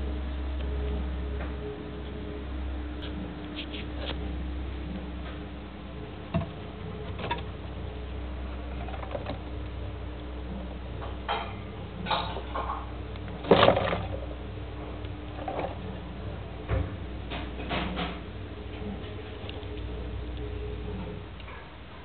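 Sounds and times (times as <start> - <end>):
steady low hum: 0.0 - 22.0
paws scratching on camera: 3.5 - 4.2.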